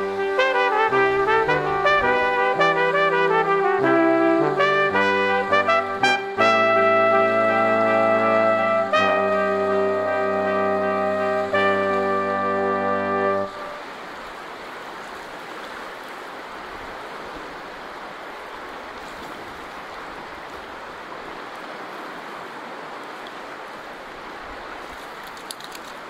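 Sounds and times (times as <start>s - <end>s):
river water rushing: 0.0s - 26.0s
faint sharp clicks: 25.0s - 26.0s.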